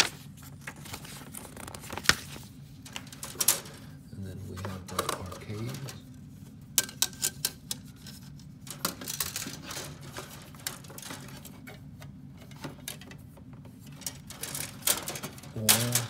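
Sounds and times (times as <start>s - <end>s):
plastic pieces clicking and rattling: 2.8s - 3.8s, 6.8s - 11.8s, 13.9s - 16.0s.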